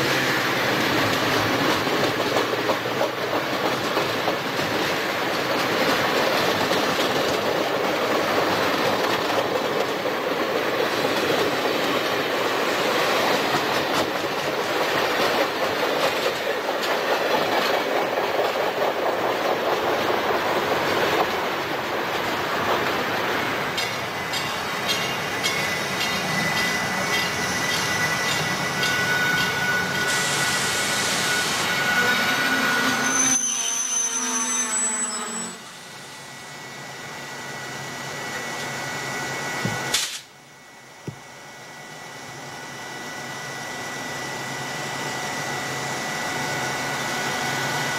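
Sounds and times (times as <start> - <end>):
train wheels clacking over rail joints: 0.7 - 23.1, 23.7 - 30.2.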